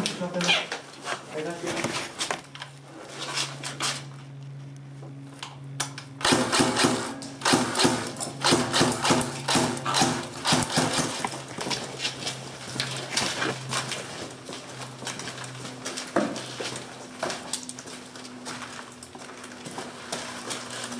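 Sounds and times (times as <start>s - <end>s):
steady low hum: 0.0s - 20.9s
airsoft guns firing in bursts: 6.2s - 11.2s.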